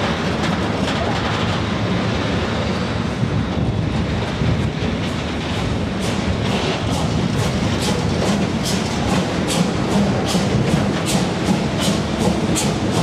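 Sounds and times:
freight wagons rumbling: 0.0s - 13.0s
train wheels clicking: 3.5s - 13.0s.

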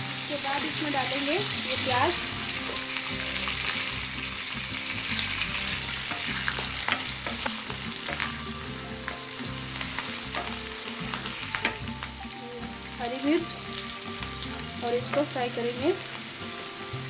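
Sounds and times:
onions sizzling in hot oil: 0.0s - 17.0s.

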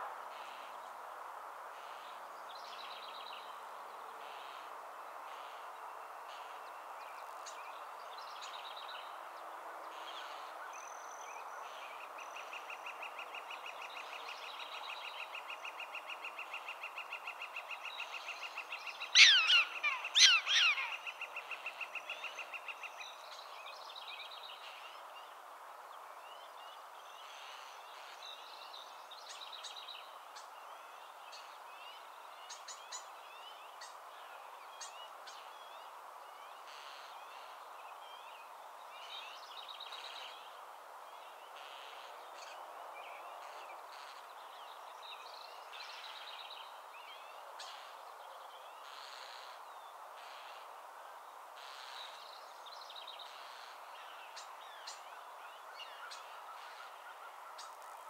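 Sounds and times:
steady outdoor hiss: 0.0s - 58.0s
small birds chirping and trilling: 11.8s - 25.1s.

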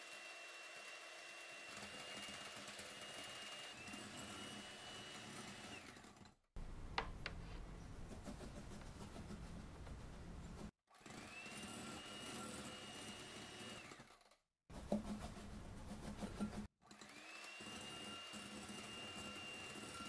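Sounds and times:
electric hand mixer whining: 0.0s - 6.2s, 10.9s - 14.1s, 16.8s - 20.0s.

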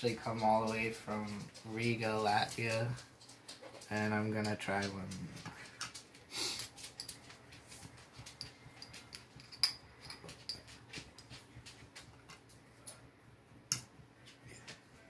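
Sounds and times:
metal fork clinking on glass jar: 8.4s - 10.7s.

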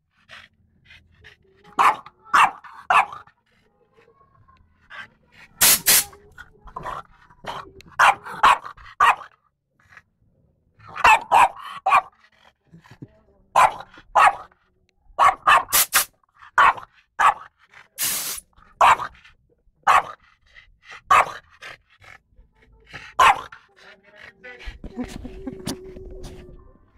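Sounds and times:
dog barking: 1.7s - 3.4s, 7.9s - 9.4s, 10.8s - 12.2s, 13.6s - 14.5s, 15.2s - 17.5s, 18.8s - 19.2s, 19.8s - 20.3s, 21.0s - 21.5s, 22.9s - 24.0s
compressed air hiss: 5.6s - 6.1s, 15.7s - 16.1s, 18.0s - 18.4s.

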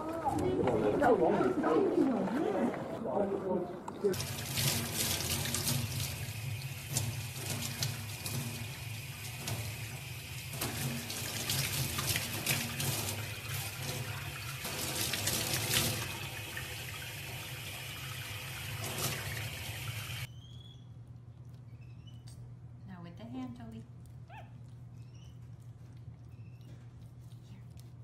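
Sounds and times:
water splashes: 0.0s - 20.3s
tap water running into sink: 4.1s - 20.3s.

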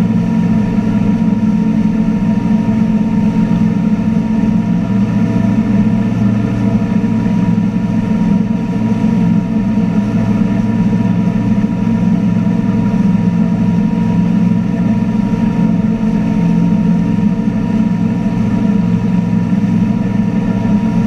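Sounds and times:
boat engine droning: 0.0s - 21.0s
rush of boat wake: 0.0s - 21.0s.

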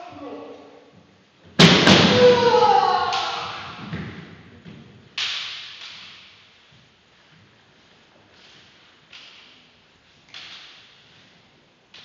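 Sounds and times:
bamboo swords striking: 1.6s - 3.8s, 5.2s - 6.5s, 10.3s - 11.0s
long echoing shout: 1.9s - 3.9s.

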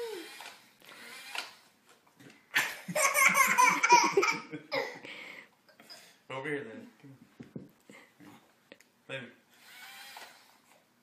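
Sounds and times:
baby laughing: 2.6s - 5.0s
man laughing: 2.6s - 5.0s.

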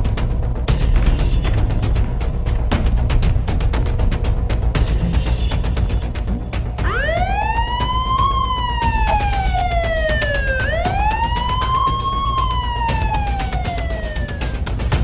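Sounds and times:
steady low rumble: 0.0s - 15.0s
ambulance siren wailing: 6.8s - 15.0s.

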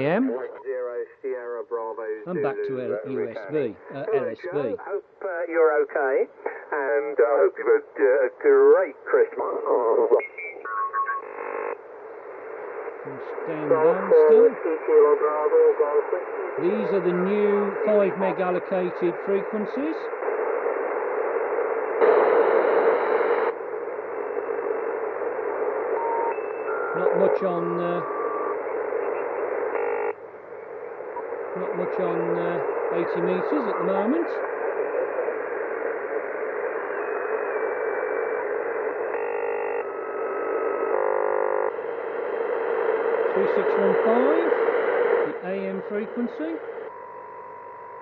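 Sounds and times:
radio static hiss: 0.0s - 47.0s
short buzzy radio signals: 12.6s - 14.8s.

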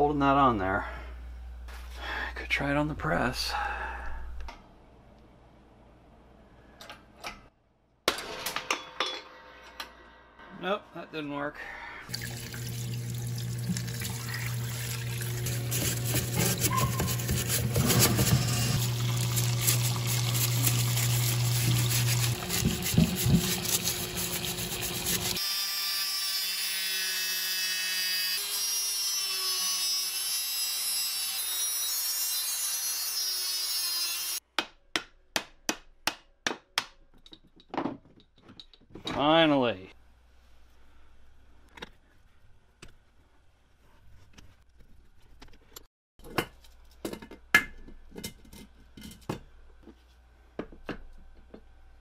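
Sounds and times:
solvent splashing: 12.1s - 17.7s, 18.8s - 25.4s
pump humming: 12.1s - 25.4s.

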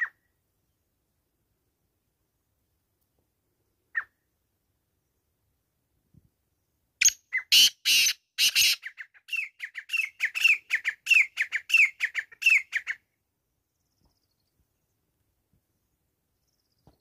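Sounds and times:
francolin calling: 7.0s - 13.0s.

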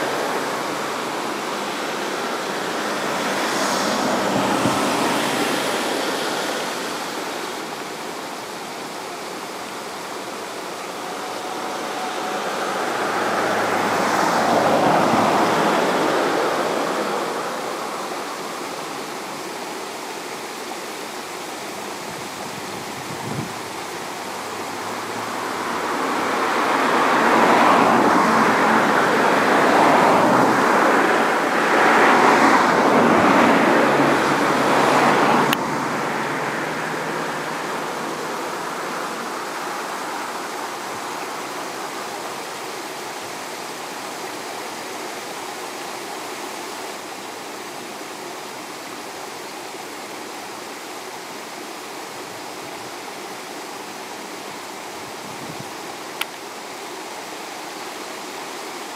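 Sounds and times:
outdoor rushing noise: 0.0s - 19.8s
click: 56.2s - 56.4s.

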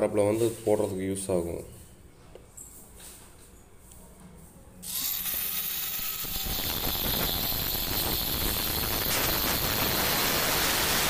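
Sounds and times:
ratchet wrench clicking: 4.8s - 10.2s
steady hiss: 6.0s - 11.0s.

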